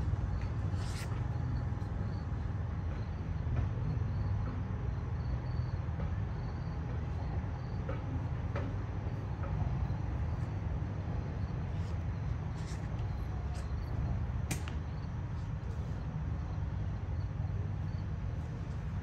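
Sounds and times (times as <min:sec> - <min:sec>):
streetcar rumbling on track: 0:01.6 - 0:11.6.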